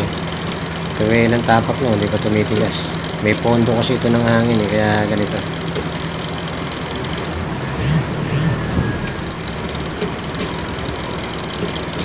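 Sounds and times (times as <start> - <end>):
diesel engine idling: 0.0 - 12.0
short hisses: 7.7 - 9.1.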